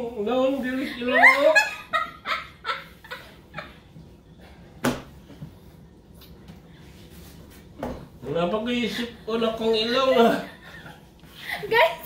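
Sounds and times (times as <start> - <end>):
woman laughing: 0.8 - 3.9, 9.9 - 12.0.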